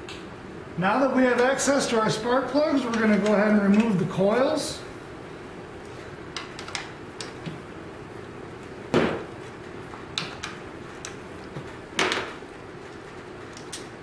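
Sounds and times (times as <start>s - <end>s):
sharp knocks: 8.9s - 9.3s.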